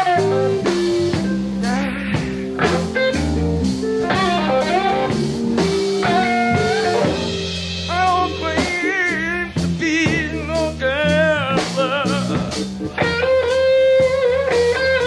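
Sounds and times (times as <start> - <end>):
blues band playing live: 0.0 - 15.0
electric guitar bent notes: 0.0 - 15.0
person singing: 1.6 - 3.3, 6.0 - 12.7.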